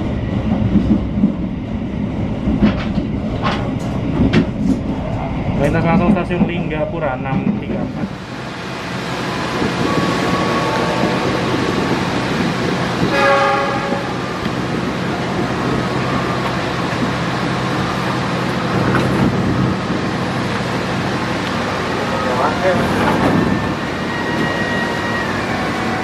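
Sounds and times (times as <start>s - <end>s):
train wheels rumbling on rail: 0.0s - 26.0s
locomotive horn blast: 9.8s - 11.4s, 13.1s - 14.2s.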